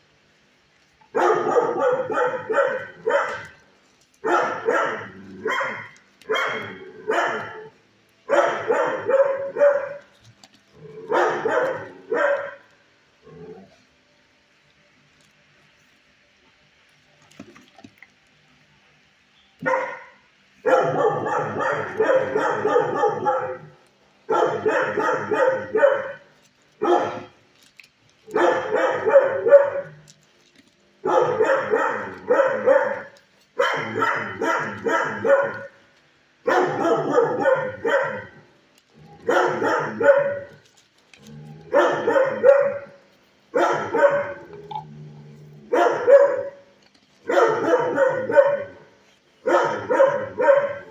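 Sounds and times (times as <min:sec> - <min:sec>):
dog barking: 0:01.1 - 0:03.6, 0:04.2 - 0:07.7, 0:08.3 - 0:10.1, 0:11.1 - 0:12.7, 0:19.6 - 0:27.4, 0:28.3 - 0:30.0, 0:31.0 - 0:35.8, 0:36.4 - 0:38.4, 0:39.2 - 0:40.6, 0:41.7 - 0:44.4, 0:45.7 - 0:46.6, 0:47.2 - 0:50.9.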